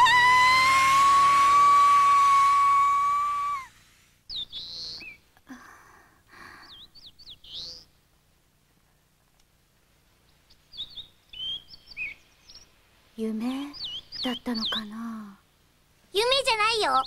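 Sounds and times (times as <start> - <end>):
loud whistling tone: 0.0 - 3.7
birds chirping: 4.3 - 5.4, 6.3 - 8.2, 10.2 - 15.4.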